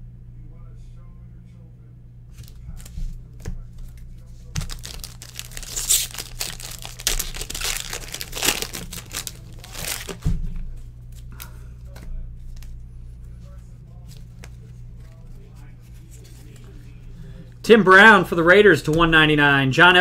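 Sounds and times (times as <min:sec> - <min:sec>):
plastic wrapper crinkling and tearing: 0:04.6 - 0:10.2.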